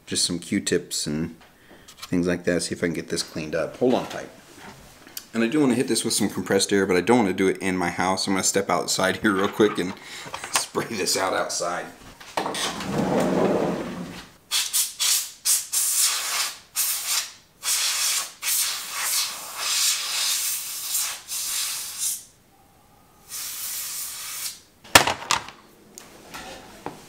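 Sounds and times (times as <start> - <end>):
compressed air hissing bursts: 23.2 - 24.6.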